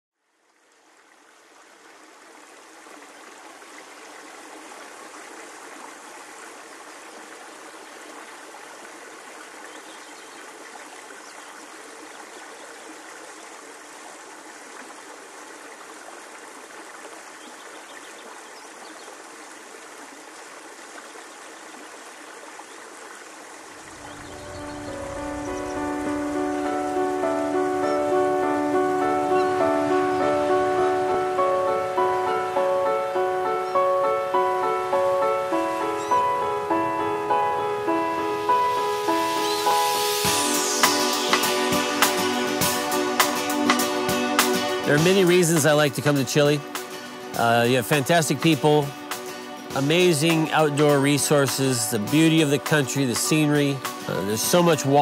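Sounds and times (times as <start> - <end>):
flowing river water: 0.2 - 55.0
music: 23.9 - 55.0.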